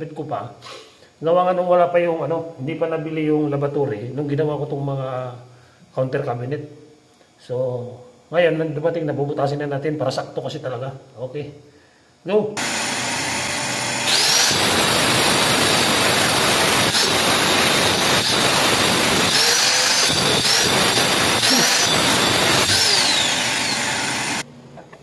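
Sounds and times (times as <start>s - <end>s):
power tool cutting tile: 12.6s - 24.4s.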